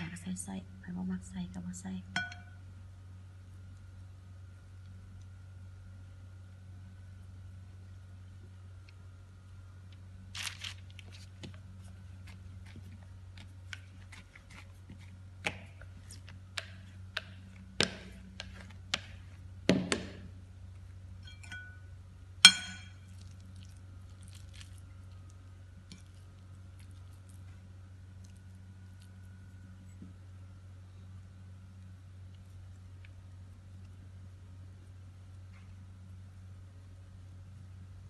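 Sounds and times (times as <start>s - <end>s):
bright ringing clink: 2.2s - 2.6s, 21.2s - 21.9s, 22.5s - 23.0s
rolling pin knocking on mat: 16.6s - 19.1s, 19.7s - 20.2s.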